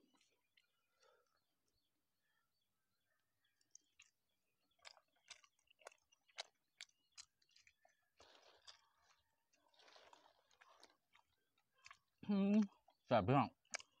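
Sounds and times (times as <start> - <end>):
wet chewing mouth smacks: 3.6 - 13.0, 13.6 - 14.0.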